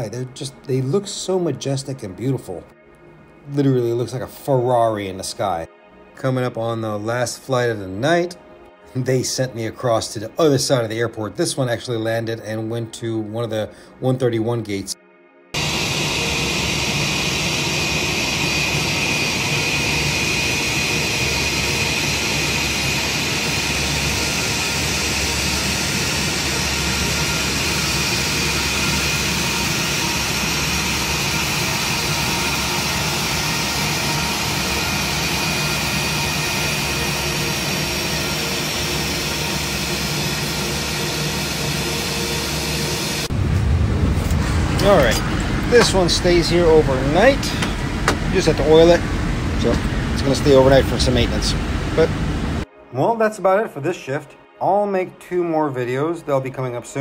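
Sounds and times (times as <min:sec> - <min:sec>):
jet engines idling: 0:15.6 - 0:52.7.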